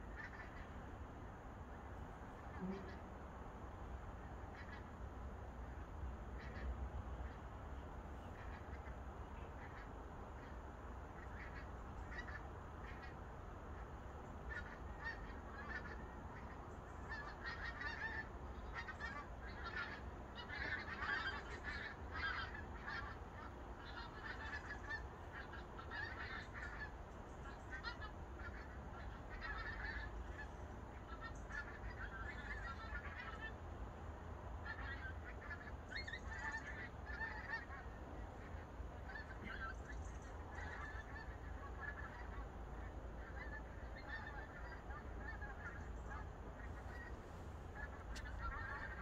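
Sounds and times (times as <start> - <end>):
geese honking: 0.0 - 0.8, 2.4 - 3.2, 4.5 - 4.9, 6.4 - 7.4, 8.2 - 33.6, 34.6 - 49.0.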